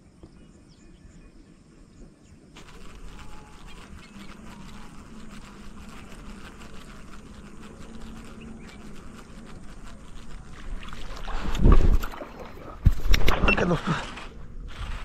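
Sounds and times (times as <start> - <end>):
insect buzzing: 2.5 - 13.2.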